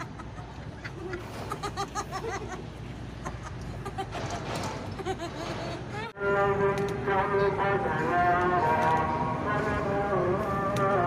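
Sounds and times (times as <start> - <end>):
children laughing: 0.0 - 6.2.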